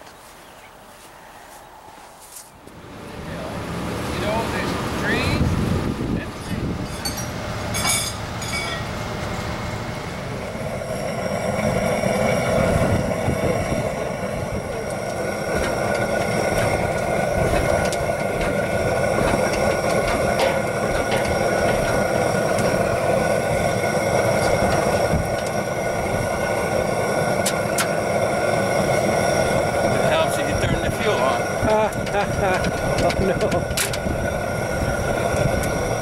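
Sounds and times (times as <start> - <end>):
propane torch burning: 2.3 - 36.0
sharp metal clinks: 6.4 - 8.9.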